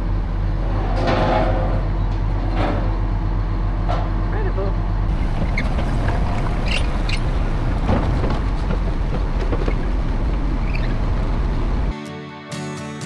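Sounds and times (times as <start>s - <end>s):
diesel engine running: 0.0s - 11.9s
knocks from tracks and ramps: 5.1s - 11.8s.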